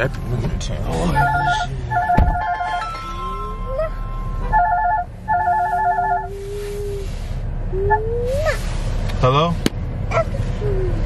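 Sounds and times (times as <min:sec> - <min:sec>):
mobile phone ringtone trilling: 0:01.2 - 0:06.3.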